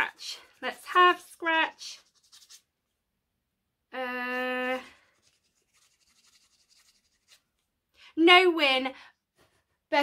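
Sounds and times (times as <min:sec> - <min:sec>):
scratch card being scratched: 0:01.7 - 0:02.7, 0:05.0 - 0:07.5.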